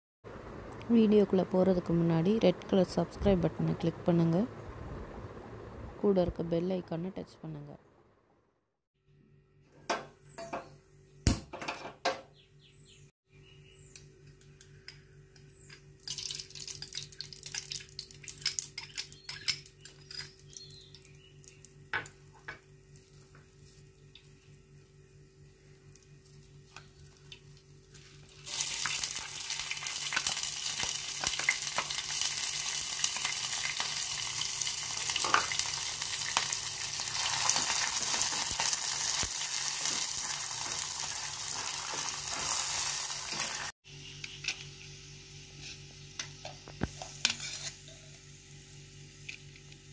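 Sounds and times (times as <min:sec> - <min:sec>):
ghee crackling in pan: 0:15.9 - 0:22.3, 0:25.8 - 0:43.8
rice sizzling in frying pan: 0:27.5 - 0:43.8, 0:44.4 - 0:49.9.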